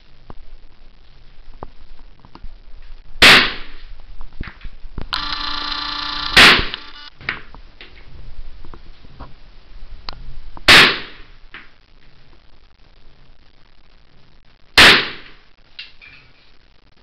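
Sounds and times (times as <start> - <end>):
rifle shots: 5.2 - 7.0
zoom motor whine: 5.2 - 7.1.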